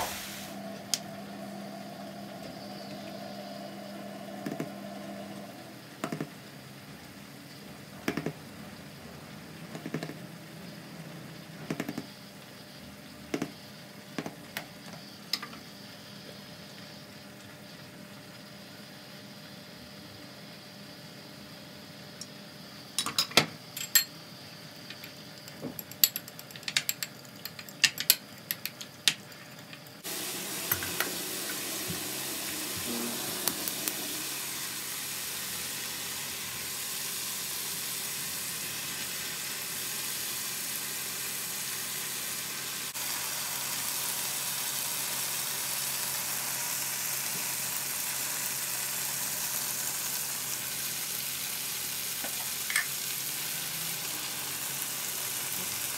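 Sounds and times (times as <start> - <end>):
chicken sizzling in a pan: 0.0 - 7.8, 29.2 - 55.9.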